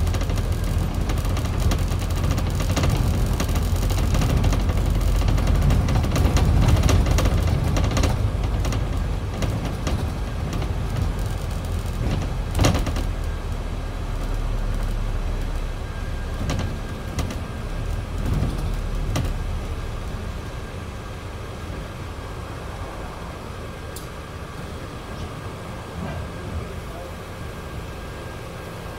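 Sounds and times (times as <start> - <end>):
bodywork rattles and knocks: 0.0 - 15.0, 16.3 - 19.6
bus engine and road rumble: 0.0 - 28.9.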